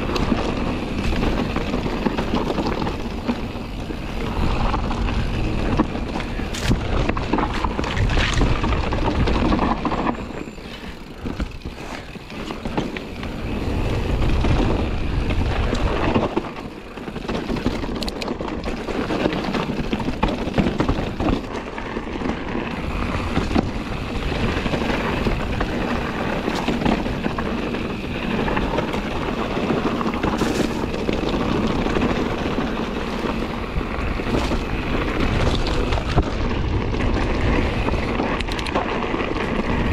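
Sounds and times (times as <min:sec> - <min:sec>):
bike knocking: 0:00.0 - 0:36.5
tyres rolling over dirt and rocks: 0:00.0 - 0:39.9
wind buffeting microphone: 0:00.0 - 0:39.9.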